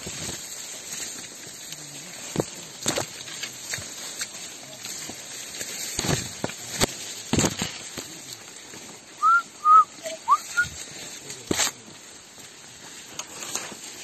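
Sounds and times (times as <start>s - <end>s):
rustling through undergrowth: 0.0s - 14.0s
short whistled notes: 9.2s - 10.8s.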